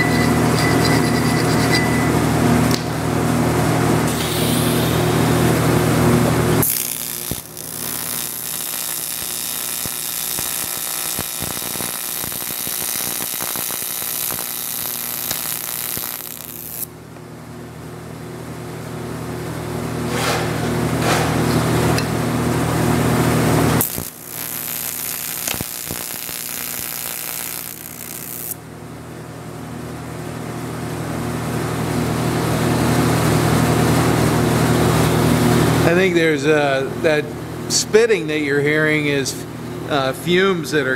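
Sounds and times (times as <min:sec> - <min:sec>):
welding arc buzz and hiss: 0:03.9 - 0:16.9, 0:20.0 - 0:28.6.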